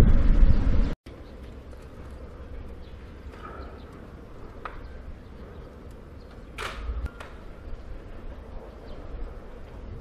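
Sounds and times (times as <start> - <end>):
low rumble: 0.0 - 1.0.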